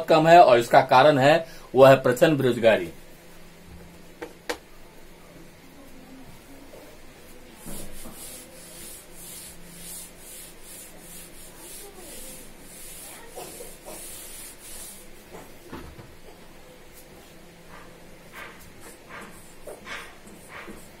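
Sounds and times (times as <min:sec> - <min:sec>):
duster wiping chalk off blackboard: 0:07.6 - 0:15.6.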